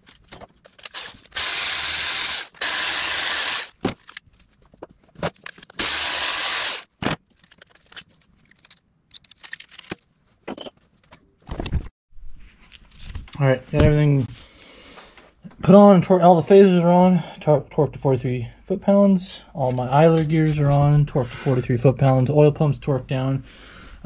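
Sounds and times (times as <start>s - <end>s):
tools clicking and knocking: 7.4s - 11.2s.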